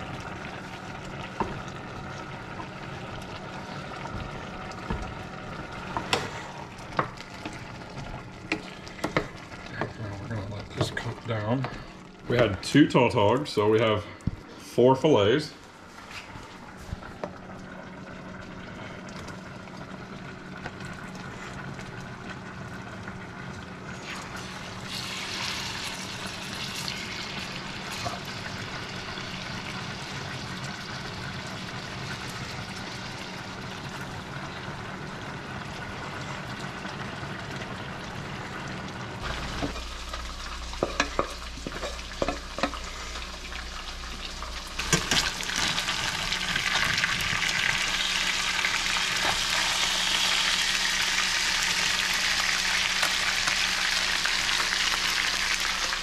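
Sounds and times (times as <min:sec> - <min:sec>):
fish sizzling in a skillet: 0:23.9 - 0:33.8, 0:39.2 - 0:56.0.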